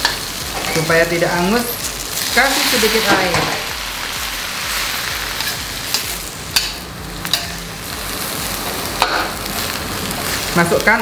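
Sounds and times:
vegetables sizzling in a wok: 0.0 - 11.0
metal spatula scraping: 5.3 - 7.6.

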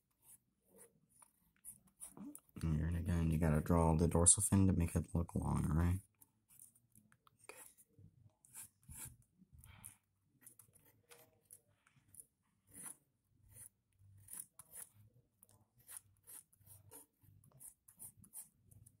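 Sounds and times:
pencil scratching on paper: 0.0 - 2.4, 7.4 - 19.0.

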